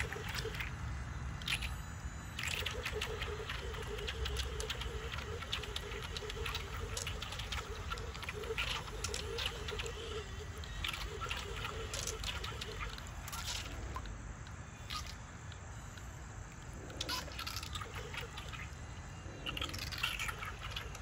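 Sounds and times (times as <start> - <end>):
water splashing: 0.0 - 16.1
low wavering hum: 0.0 - 21.0.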